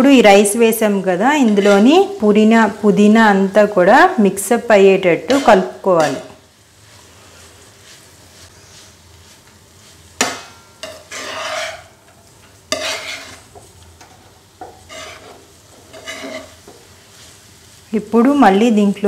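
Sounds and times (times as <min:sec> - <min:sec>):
faint sizzle: 0:00.0 - 0:19.0
spatula scraping pan: 0:00.6 - 0:03.1, 0:05.1 - 0:17.5
spatula stirring rice in pan: 0:00.6 - 0:03.1, 0:05.2 - 0:17.9.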